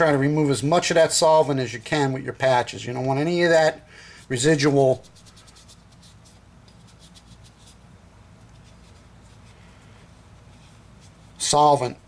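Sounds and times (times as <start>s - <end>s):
steady low hum: 0.0s - 12.0s
cloth patch scratching through metal: 4.4s - 9.7s.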